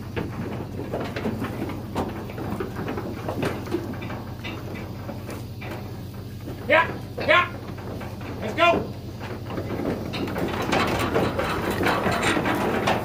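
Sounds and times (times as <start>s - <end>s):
hooves on wooden floor: 0.0s - 13.0s.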